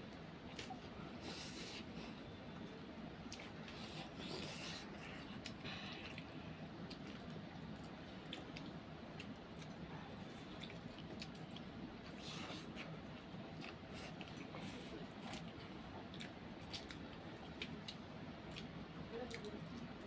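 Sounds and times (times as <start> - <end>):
faint low hum: 0.0 - 20.0
slurping and chewing: 3.3 - 18.7.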